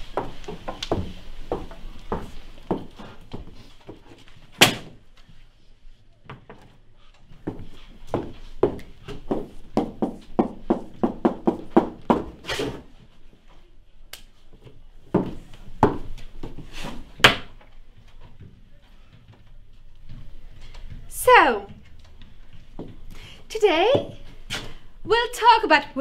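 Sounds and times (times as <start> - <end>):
knocking: 8.2 - 12.4.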